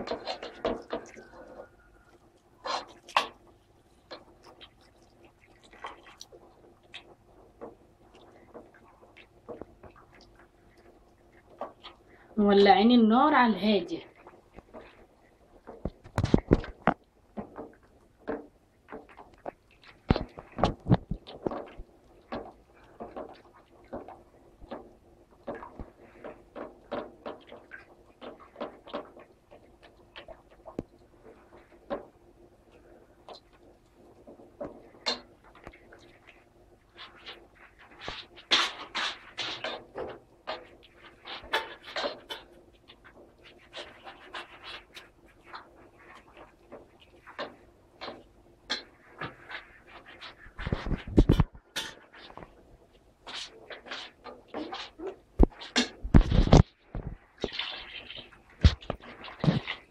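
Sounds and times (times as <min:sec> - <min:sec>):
utensil scraping and knocking pot: 0:00.0 - 0:04.8, 0:05.7 - 0:52.6, 0:53.2 - 0:59.9
utensil scraping a pot: 0:34.4 - 0:52.6, 0:53.2 - 0:59.9.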